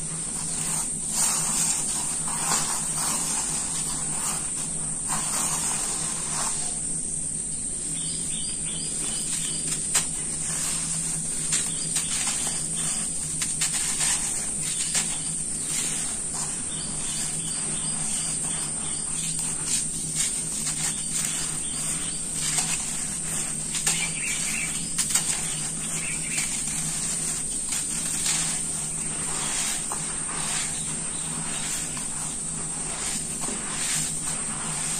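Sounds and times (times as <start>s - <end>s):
hands crunching dry cement powder: 0.0s - 6.9s, 7.9s - 34.9s.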